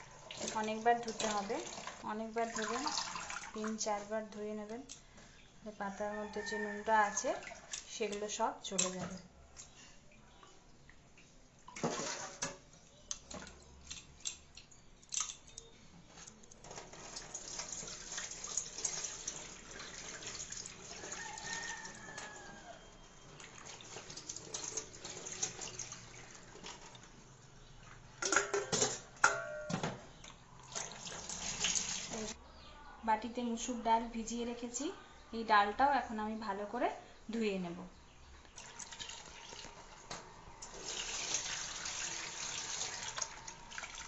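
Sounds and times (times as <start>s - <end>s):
water splashes: 0.3s - 3.8s
tap water running into sink: 0.3s - 3.9s, 17.0s - 22.3s, 30.7s - 32.3s, 38.6s - 44.0s
steel bowls clinking: 28.2s - 29.8s.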